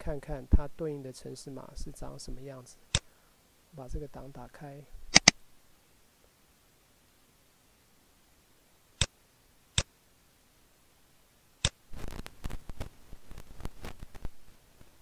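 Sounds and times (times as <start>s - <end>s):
computer mouse clicks: 5.1s - 5.4s.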